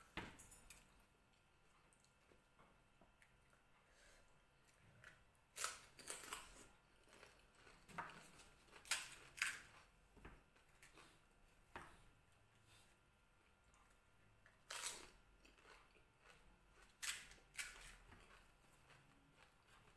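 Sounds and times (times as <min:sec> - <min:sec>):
crisp shells crunching when chewed: 0:05.0 - 0:09.9, 0:14.4 - 0:19.9.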